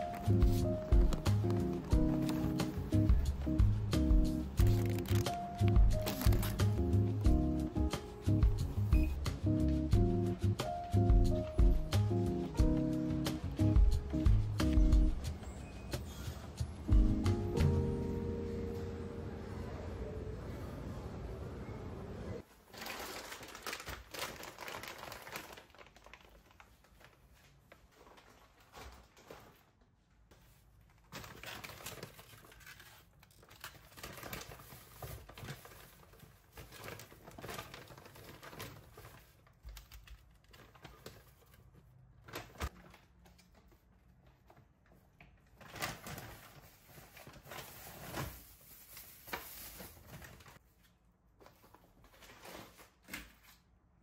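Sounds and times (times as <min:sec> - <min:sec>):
plastic bag rustling: 0:00.0 - 0:03.7, 0:04.5 - 0:08.9, 0:22.4 - 0:43.8, 0:45.4 - 0:50.7.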